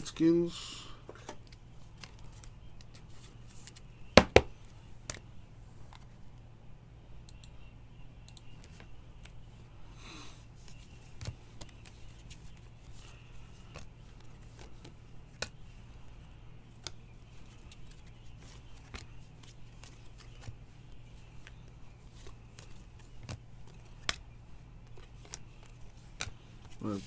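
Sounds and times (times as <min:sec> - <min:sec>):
steady low hum: 0:00.0 - 0:27.0
trading cards clicking and snapping: 0:10.7 - 0:15.7, 0:16.8 - 0:26.8.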